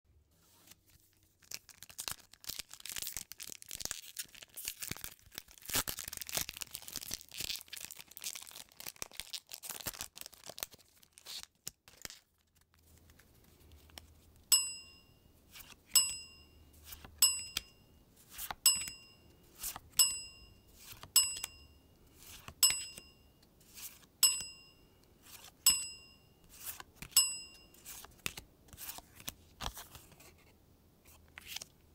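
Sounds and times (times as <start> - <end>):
foil pack crinkling and tearing: 1.4 - 12.6
short bright ringing dings: 14.5 - 15.3, 15.9 - 16.6, 17.2 - 18.0, 18.6 - 19.4, 20.0 - 21.9, 22.6 - 23.4, 24.2 - 25.0, 25.6 - 26.4, 27.1 - 27.8.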